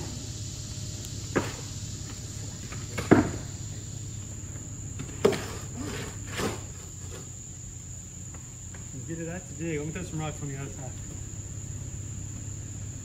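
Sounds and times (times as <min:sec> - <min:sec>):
summer insects droning: 0:00.0 - 0:13.0
hard knocks: 0:02.8 - 0:03.5.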